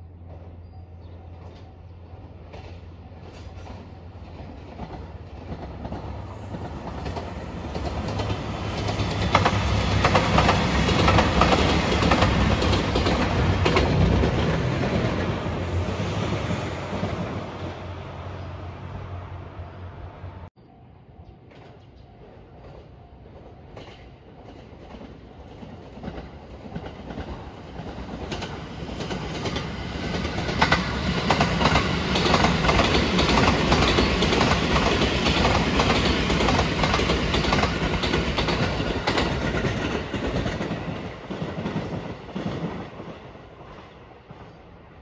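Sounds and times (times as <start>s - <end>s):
electric train passing: 0.0s - 45.0s
wheels clicking over rail joints: 23.7s - 43.2s.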